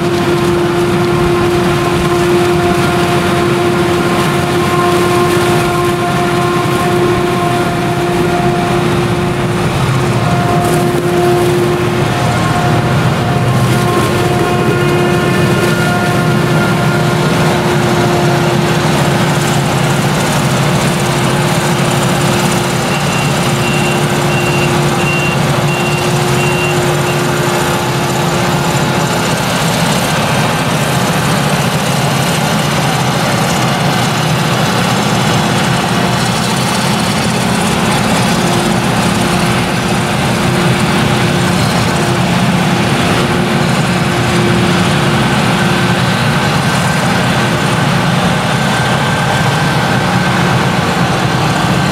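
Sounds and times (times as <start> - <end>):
harvester engine droning: 0.0 - 51.9
tractor engine: 0.0 - 51.9
short high beeps: 22.9 - 27.3.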